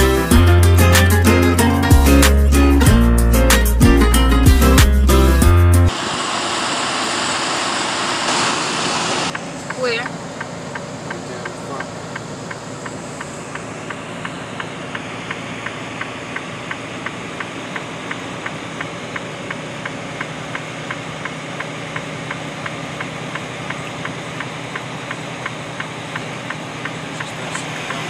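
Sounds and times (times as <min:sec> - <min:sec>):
truck engine and road noise: 0:00.0 - 0:28.0
light even ticking: 0:09.3 - 0:28.0.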